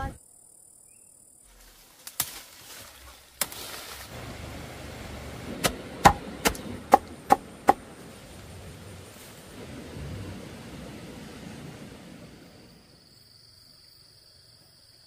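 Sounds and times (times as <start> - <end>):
sharp chopping strikes: 5.6 - 7.8.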